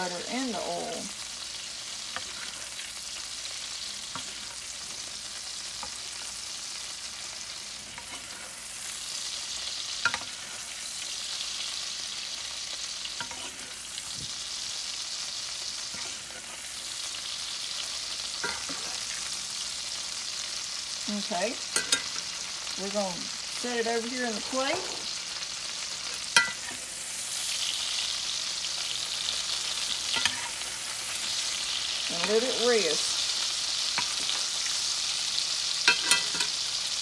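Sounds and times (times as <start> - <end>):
steak sizzling in a skillet: 0.0 - 37.0
metal spoon clicking on pan: 21.8 - 22.2, 26.4 - 26.7, 35.9 - 36.5.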